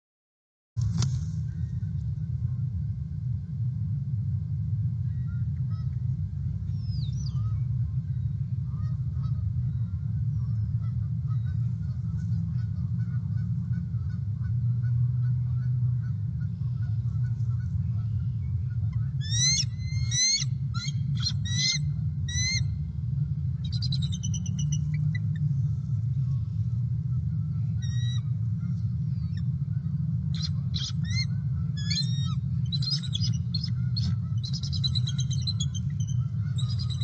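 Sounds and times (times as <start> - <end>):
steady low rumble: 0.8 - 37.0
eagle high chirps: 19.2 - 22.7, 23.6 - 25.5, 27.8 - 28.3, 30.4 - 37.0
faint chittering: 23.5 - 26.7, 30.3 - 37.0.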